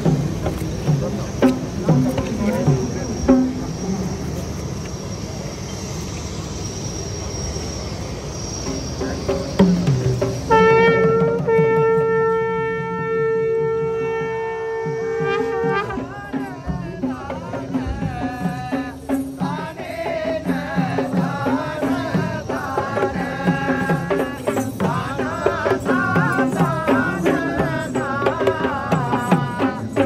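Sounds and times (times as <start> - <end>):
double-headed drums drumming: 0.0 - 3.8, 9.0 - 30.0
wind instrument melody: 8.6 - 20.7.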